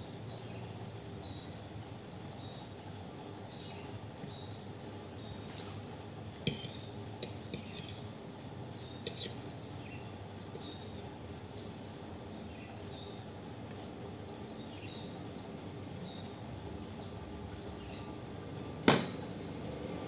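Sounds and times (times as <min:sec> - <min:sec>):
cutlery clinking on a plate: 0:06.4 - 0:08.0, 0:09.0 - 0:09.4.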